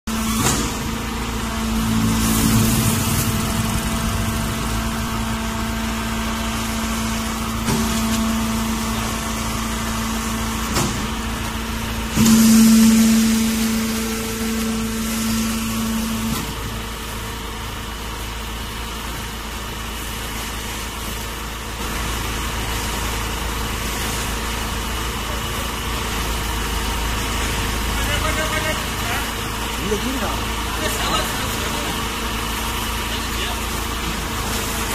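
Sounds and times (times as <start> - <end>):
louder humming tone: 0.1 - 10.5, 11.7 - 17.6
baler motor and pump humming: 0.1 - 34.9.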